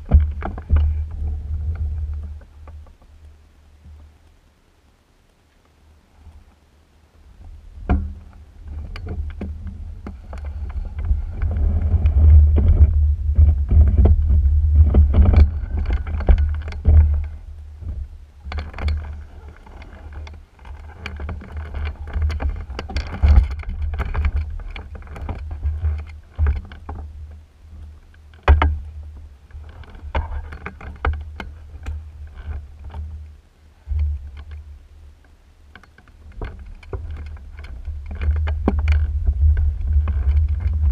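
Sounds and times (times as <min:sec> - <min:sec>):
airframe knocks and rattles: 0:00.0 - 0:03.0, 0:07.8 - 0:27.2, 0:35.9 - 0:40.9
wheels rumbling: 0:00.0 - 0:05.0, 0:05.7 - 0:40.9.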